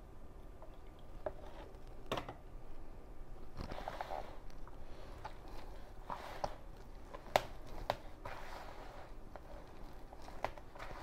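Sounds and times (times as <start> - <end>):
hands kneading dough: 3.4 - 11.0.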